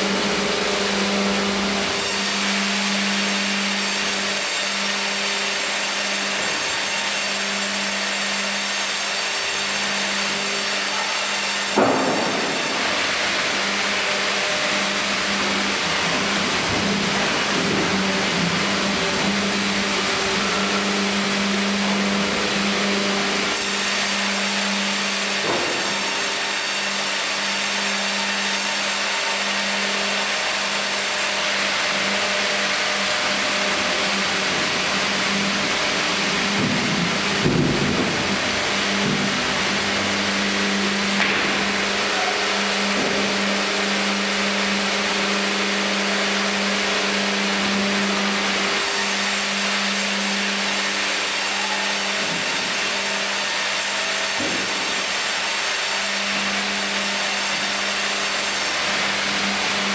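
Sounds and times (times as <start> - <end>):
band saw humming: 0.0 - 59.9
sharp knock: 11.8 - 12.6.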